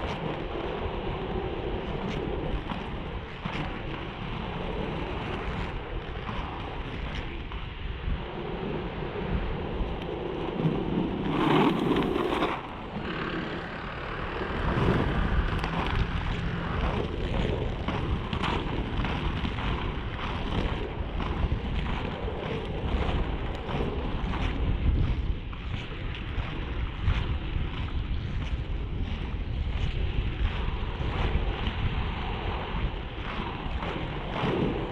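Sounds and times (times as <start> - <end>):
skate wheels rolling on asphalt: 0.0 - 34.9
wind buffeting microphone: 0.0 - 34.9.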